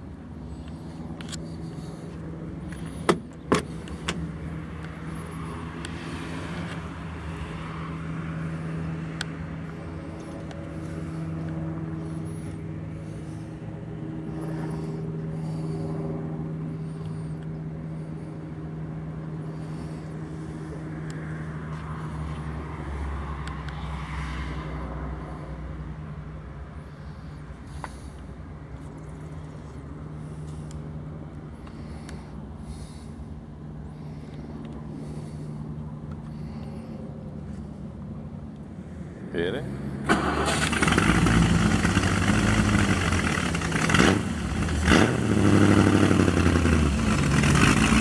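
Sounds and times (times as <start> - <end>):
engine idling: 40.1 - 48.0.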